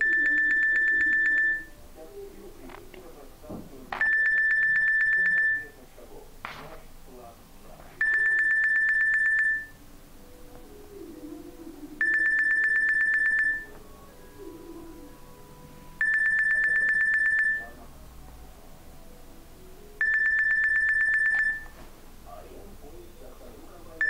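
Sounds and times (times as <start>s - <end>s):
electronic phone ringtone: 0.0s - 1.8s, 4.0s - 5.8s, 8.0s - 9.8s, 12.0s - 17.8s, 20.0s - 21.8s.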